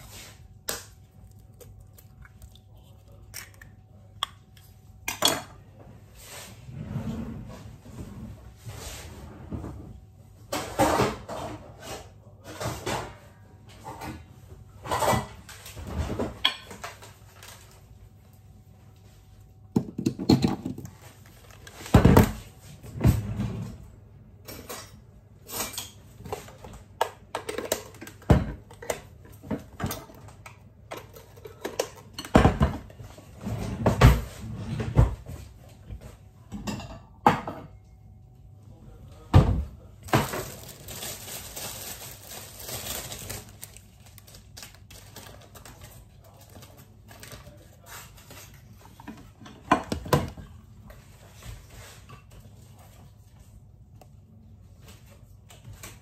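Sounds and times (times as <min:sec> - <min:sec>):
dishes and utensils clattering: 0:05.1 - 0:05.7, 0:10.5 - 0:17.1, 0:19.8 - 0:21.0, 0:24.4 - 0:35.4, 0:36.4 - 0:38.0.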